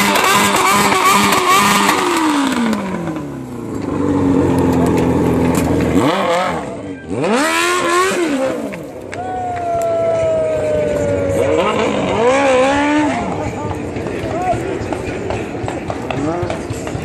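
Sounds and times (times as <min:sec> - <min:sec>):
motorcycle engine revving: 0:00.0 - 0:09.1, 0:10.0 - 0:17.0.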